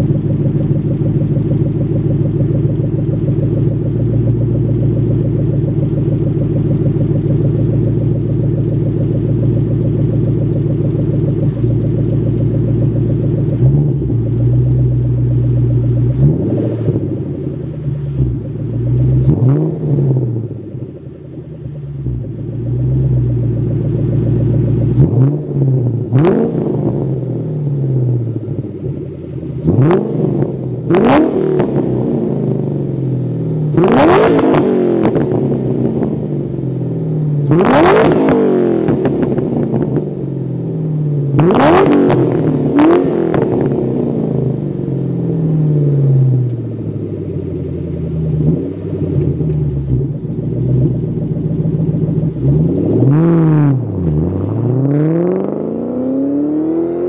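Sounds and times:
car engine idling: 0:00.0 - 0:38.2, 0:38.8 - 0:57.0
car engine revving: 0:00.0 - 0:57.0
car accelerating away: 0:09.9 - 0:21.0, 0:21.6 - 0:28.3, 0:29.0 - 0:32.6, 0:37.4 - 0:40.0, 0:41.3 - 0:44.7, 0:45.6 - 0:57.0.

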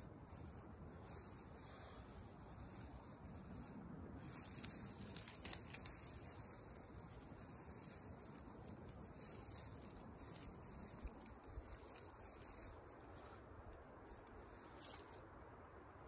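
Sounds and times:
dry sticks rustling and crackling: 0:00.0 - 0:15.5
sticks snapping: 0:04.2 - 0:12.8.

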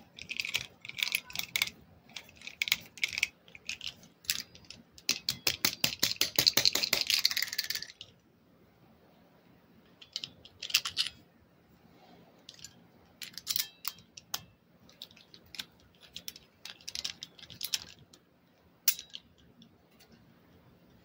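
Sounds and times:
handcuffs clinking and scraping: 0:00.0 - 0:08.1, 0:10.0 - 0:11.2, 0:12.4 - 0:18.2, 0:18.9 - 0:20.2.

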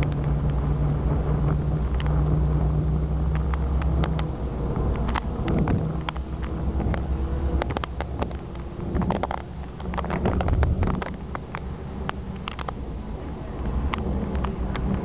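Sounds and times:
car engine and tyre rumble: 0:00.0 - 0:15.0
light clicks and knocks: 0:03.3 - 0:15.0.

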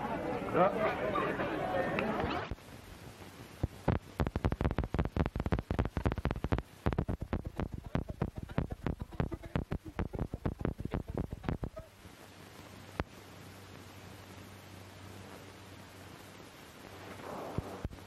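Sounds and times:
sharp clicks and knocks: 0:03.9 - 0:11.7.

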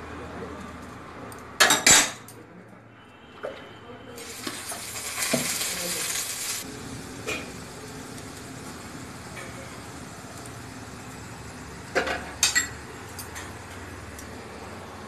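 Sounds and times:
hot pan sizzling: 0:04.2 - 0:15.0
metal cookware clanking: 0:11.9 - 0:13.9.

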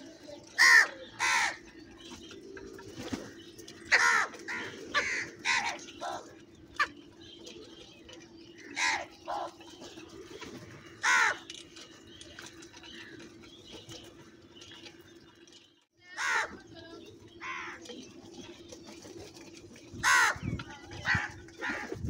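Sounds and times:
crows cawing: 0:00.6 - 0:01.6, 0:03.9 - 0:06.2, 0:08.6 - 0:09.5, 0:11.0 - 0:11.5, 0:16.2 - 0:16.6, 0:17.4 - 0:17.8, 0:20.0 - 0:21.9.

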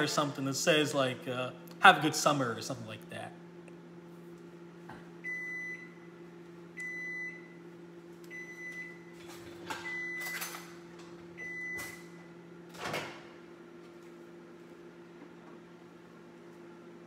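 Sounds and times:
microwave oven beeping: 0:04.7 - 0:17.0.

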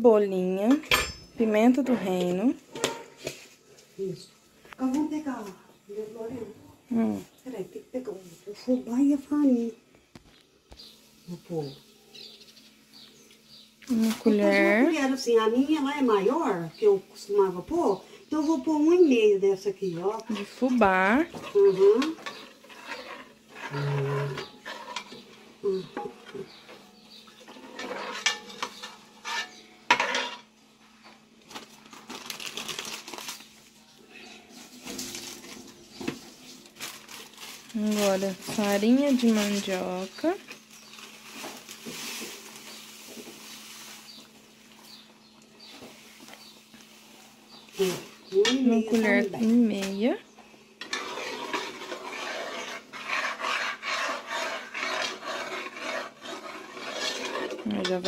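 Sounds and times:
spoon scraping cooking pot: 0:20.2 - 0:30.5, 0:50.8 - 0:58.0.

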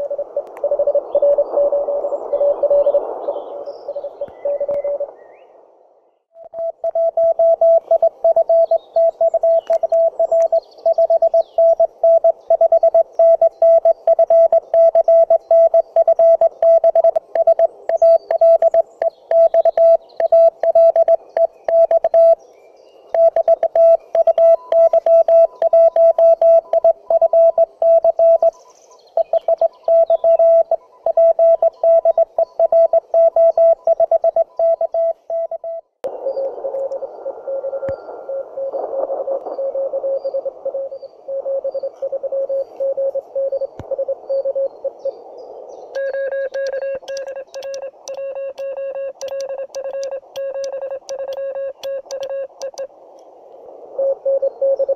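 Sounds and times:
morse code tone: 0:06.4 - 0:22.4, 0:23.2 - 0:28.6, 0:29.2 - 0:36.0, 0:39.3 - 0:44.7, 0:46.0 - 0:52.9.

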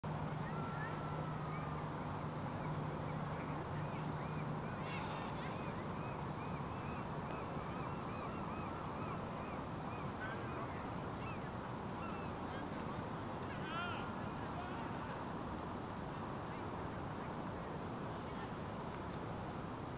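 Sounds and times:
steady low hum: 0:00.0 - 0:19.9
waterbirds calling: 0:00.1 - 0:15.4.

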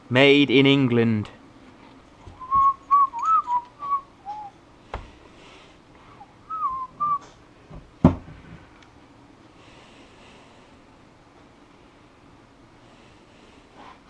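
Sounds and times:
man whistling a tune: 0:02.4 - 0:04.6, 0:06.4 - 0:07.3.

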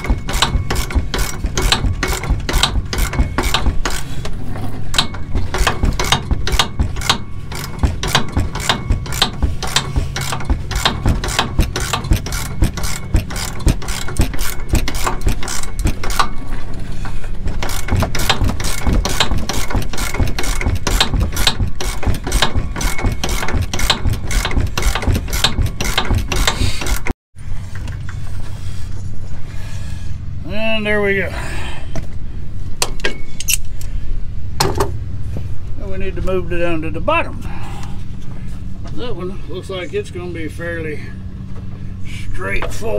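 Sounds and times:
ratchet wrench clicking: 0:00.0 - 0:04.2, 0:04.9 - 0:16.4, 0:17.6 - 0:27.1
steady low hum: 0:00.0 - 0:42.9.

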